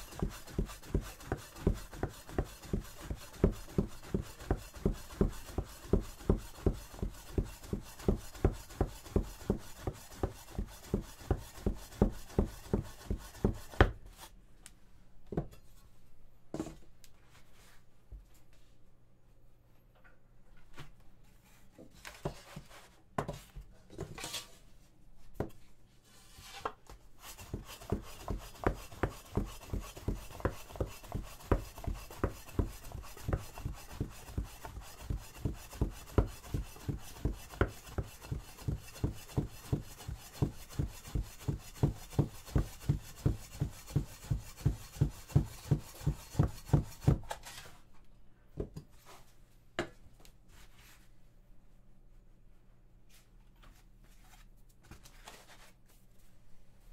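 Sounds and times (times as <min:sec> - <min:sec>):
knife chopping dough on wooden board: 0:00.0 - 0:14.0, 0:27.3 - 0:47.3
irregular knocks and handling sounds: 0:13.8 - 0:18.8, 0:19.7 - 0:28.0.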